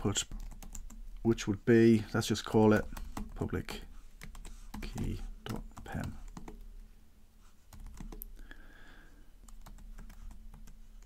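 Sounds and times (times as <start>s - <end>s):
computer keyboard typing: 0.1s - 1.1s, 2.7s - 3.5s, 4.2s - 6.7s, 7.7s - 8.3s, 9.4s - 11.0s.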